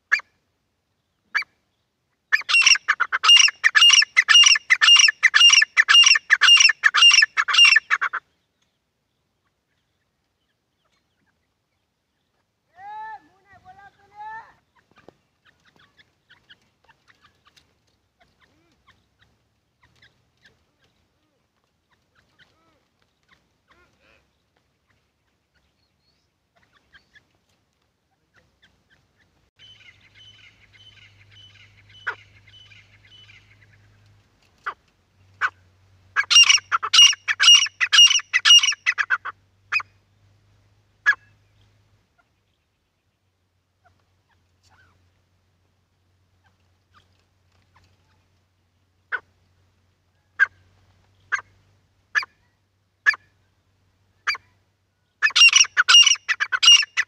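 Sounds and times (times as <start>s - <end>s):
francolins calling: 1.2s - 8.7s, 28.6s - 34.0s, 34.6s - 40.0s, 54.2s - 57.0s.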